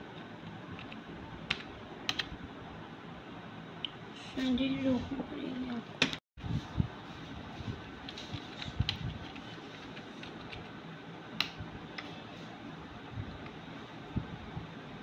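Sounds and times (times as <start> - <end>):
laptop keyboard typing: 0.8 - 2.3.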